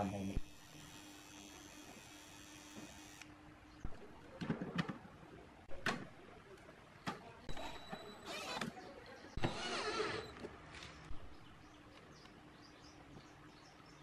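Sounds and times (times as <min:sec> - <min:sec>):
cordless drill driving screws: 0:09.4 - 0:10.3.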